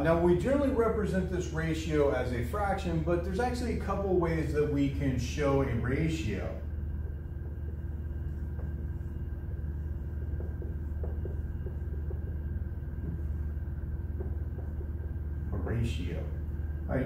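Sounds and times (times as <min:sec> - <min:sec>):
low room hum: 0:00.0 - 0:17.0
marker writing on whiteboard: 0:06.7 - 0:15.6.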